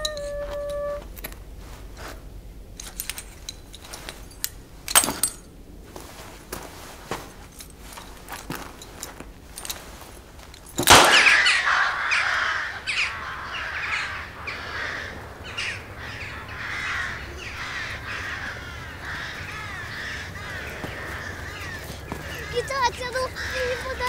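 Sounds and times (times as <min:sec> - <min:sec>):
toy pistol bang: 0:10.8 - 0:11.6
crows cawing: 0:10.9 - 0:24.0.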